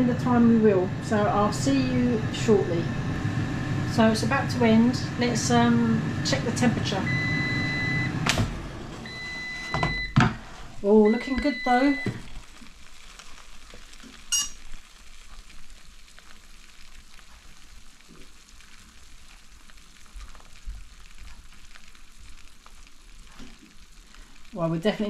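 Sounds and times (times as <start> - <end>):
fat sizzling crackling hiss: 11.8 - 25.0.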